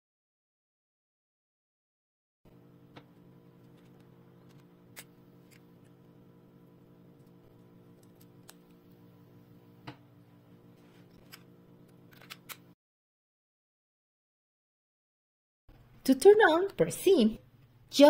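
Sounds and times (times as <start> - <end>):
low steady hum: 2.5 - 12.8.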